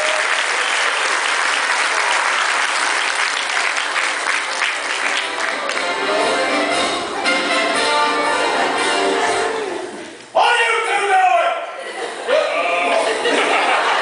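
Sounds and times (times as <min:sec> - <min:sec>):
audience applauding: 0:00.0 - 0:06.2
music playing: 0:04.6 - 0:10.3.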